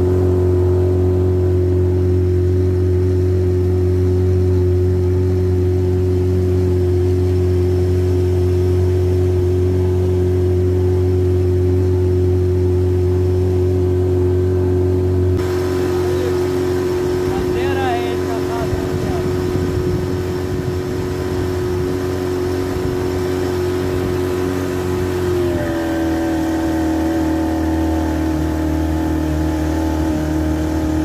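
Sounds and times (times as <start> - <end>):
outboard motor droning: 0.0 - 31.0.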